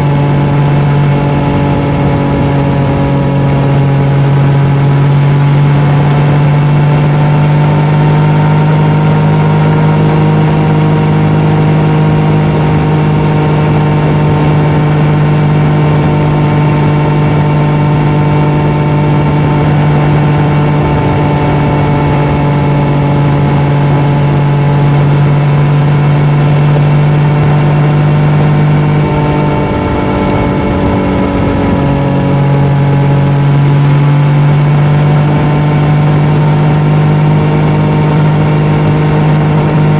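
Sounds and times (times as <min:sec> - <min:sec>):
motorcycle engine cruising: 0:00.0 - 0:39.9.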